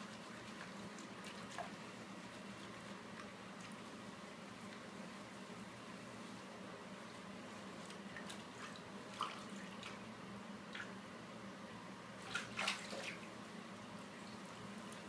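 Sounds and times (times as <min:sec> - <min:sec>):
bathwater splashing: 0:00.0 - 0:05.1, 0:07.8 - 0:10.1, 0:12.2 - 0:15.0
faint low hum: 0:00.0 - 0:15.0.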